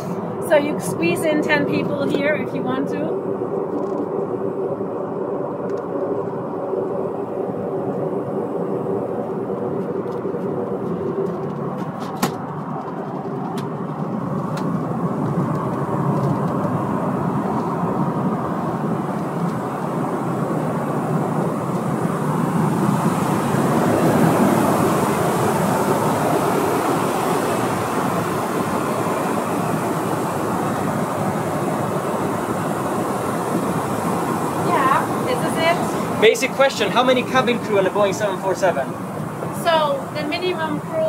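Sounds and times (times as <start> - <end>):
airplane cabin air rush: 0.0 - 41.0
engine hum: 0.0 - 41.0.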